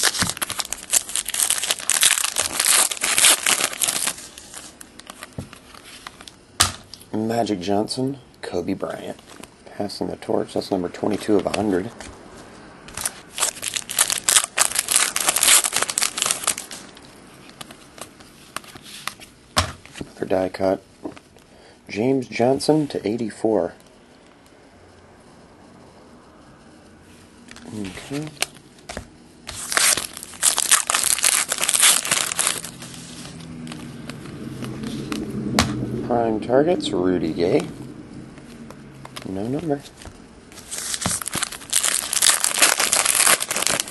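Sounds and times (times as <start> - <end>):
wrapper crinkling and tearing: 0.0 - 5.8, 12.9 - 17.6, 29.5 - 33.9, 40.6 - 43.9.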